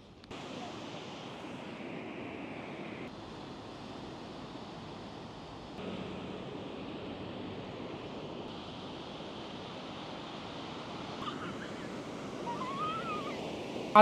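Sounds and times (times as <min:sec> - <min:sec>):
waves breaking on beach: 0:00.0 - 0:14.0
faint wavering high-pitched call: 0:11.2 - 0:13.5.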